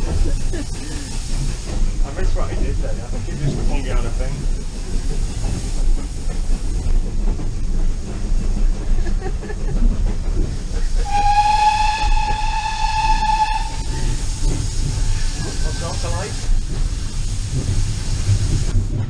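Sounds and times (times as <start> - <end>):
train rumbling inside coach: 0.0 - 19.0
steam whistle blast: 11.0 - 14.1.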